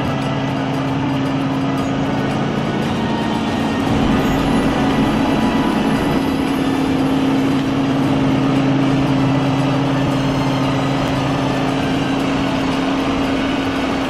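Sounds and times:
truck diesel engine idling: 3.7 - 9.0.

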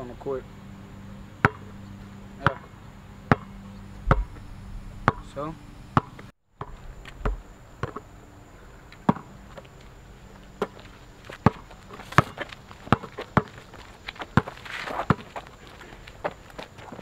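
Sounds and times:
basketball bouncing on asphalt: 1.4 - 1.8, 2.4 - 4.4, 5.0 - 5.3, 6.0 - 8.1, 8.9 - 17.0.

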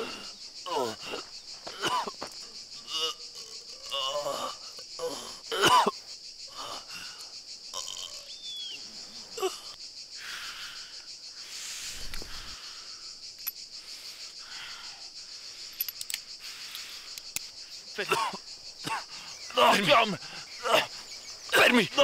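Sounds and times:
man breathing heavily: 0.0 - 2.9, 6.5 - 7.4, 9.6 - 17.9, 18.5 - 21.4
insects chirring: 0.0 - 22.0
faint clicks: 15.8 - 17.6.

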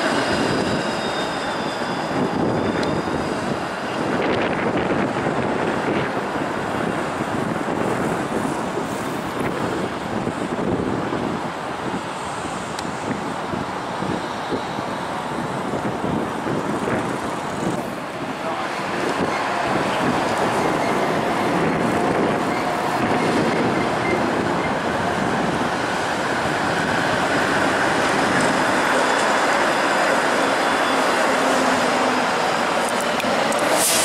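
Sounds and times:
streetcar rolling along track: 0.0 - 34.0
street traffic: 2.1 - 34.0.

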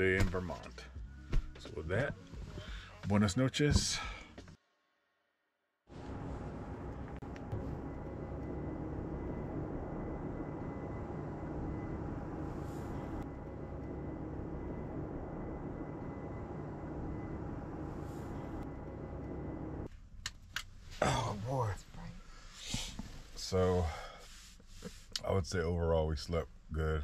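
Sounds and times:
steady mechanical hum: 5.9 - 27.0.

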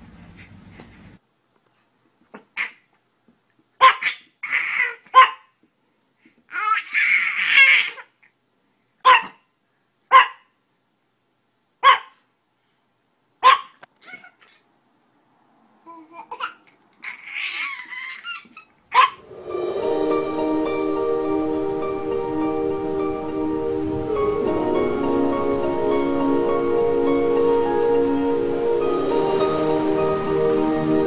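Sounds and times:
small dog yapping: 3.8 - 5.5, 9.0 - 9.5, 10.1 - 10.5, 11.8 - 12.2, 13.4 - 14.6
baby laughing and squealing: 16.1 - 19.4.

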